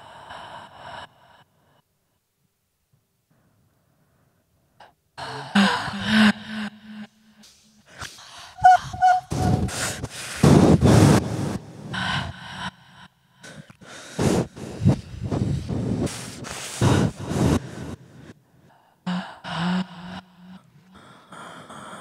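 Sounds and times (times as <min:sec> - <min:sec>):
person breathing into microphone: 0:07.3 - 0:22.0.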